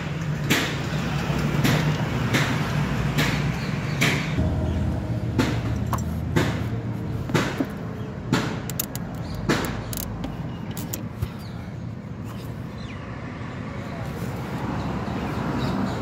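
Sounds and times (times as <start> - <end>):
steady low hum: 4.4 - 8.7
plastic filter housing clicks: 8.7 - 11.0.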